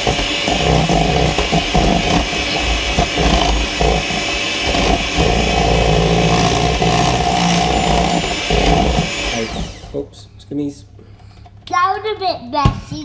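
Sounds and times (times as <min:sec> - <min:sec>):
electric mixer whisking batter: 0:00.0 - 0:10.0.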